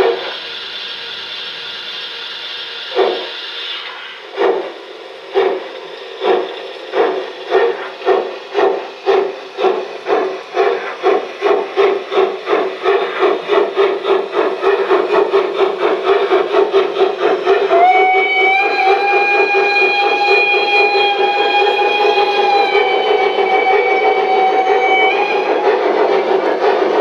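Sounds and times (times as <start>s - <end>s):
steam locomotive chuffs from loudspeaker: 0.0s - 27.0s.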